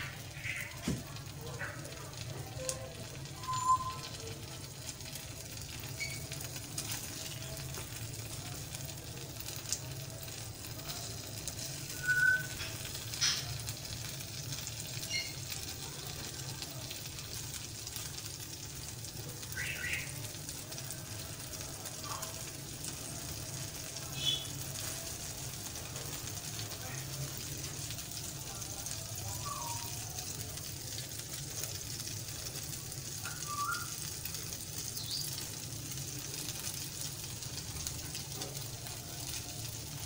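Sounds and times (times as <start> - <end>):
bread sizzling in oil: 0.0 - 40.0
spatula clicking and scraping pan: 12.5 - 13.6.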